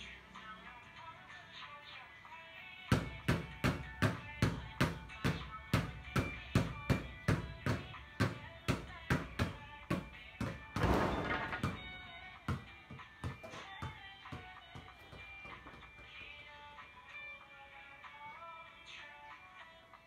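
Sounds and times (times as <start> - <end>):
soft background music: 0.0 - 20.0
basketballs bouncing on tiled floor: 2.9 - 16.6.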